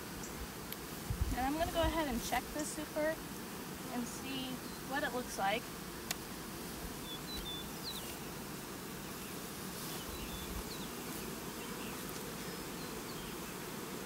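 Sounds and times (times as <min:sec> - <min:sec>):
honeybees humming: 0:00.0 - 0:14.0.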